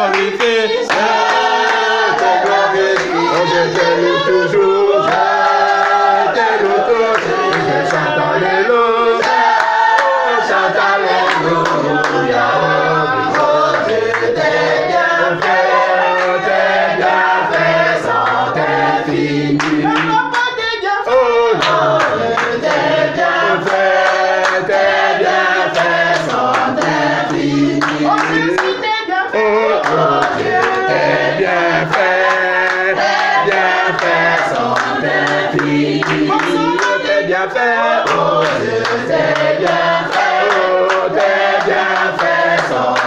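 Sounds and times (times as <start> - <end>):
hand clapping: 0.0 - 6.0, 19.6 - 22.9, 23.6 - 25.0, 25.6 - 28.9, 29.8 - 31.1, 31.8 - 37.1, 38.0 - 43.0
group singing together: 0.0 - 43.0.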